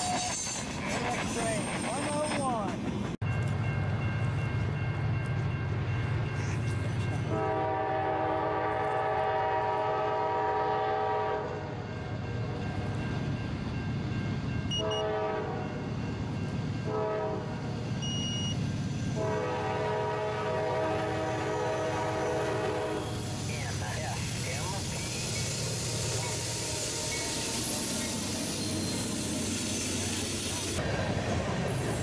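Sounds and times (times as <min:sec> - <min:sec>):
train air horn blasts: 0:07.3 - 0:11.7, 0:14.7 - 0:15.8, 0:16.8 - 0:18.2, 0:19.2 - 0:23.3, 0:26.5 - 0:27.6.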